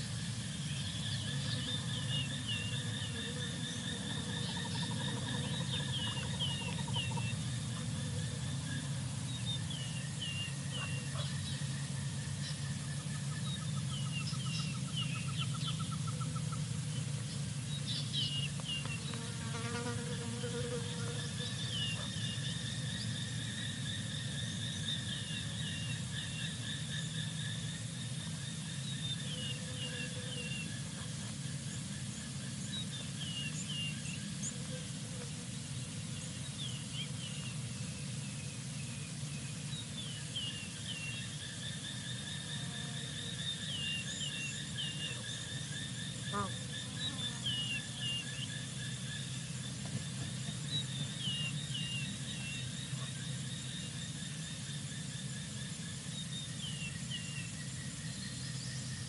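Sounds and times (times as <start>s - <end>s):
insects trilling: 0.0s - 59.0s.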